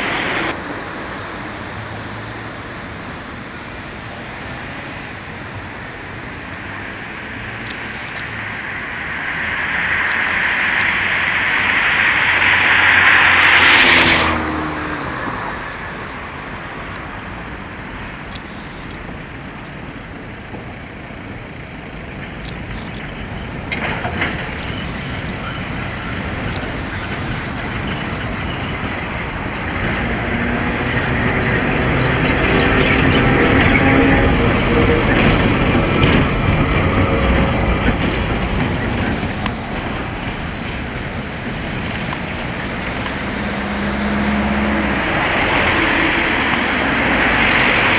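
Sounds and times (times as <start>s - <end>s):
road traffic: 0.0s - 47.9s
tram wheels on rails: 0.0s - 47.9s.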